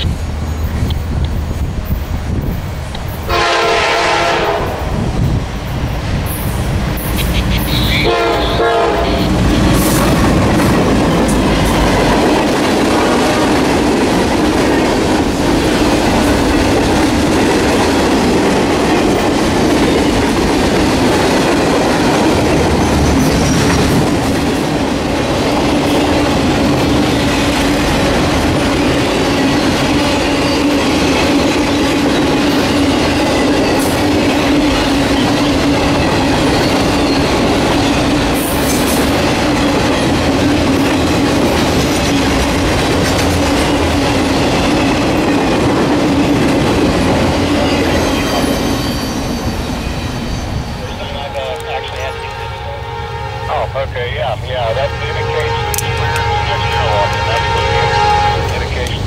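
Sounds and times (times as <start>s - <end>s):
diesel locomotive rumble: 0.0s - 59.0s
train wheels clattering on rails: 9.2s - 52.4s.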